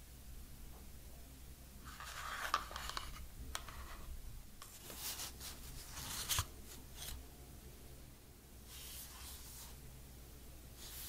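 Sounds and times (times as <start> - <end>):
paper packaging rustling: 1.9 - 4.0, 4.6 - 7.2.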